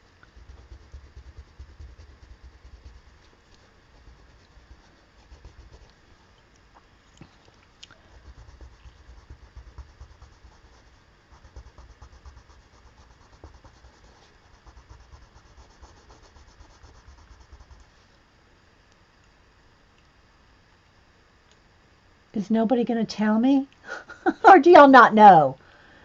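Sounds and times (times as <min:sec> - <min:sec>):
coloured pencil scratching: 0:00.3 - 0:06.0, 0:08.1 - 0:17.9.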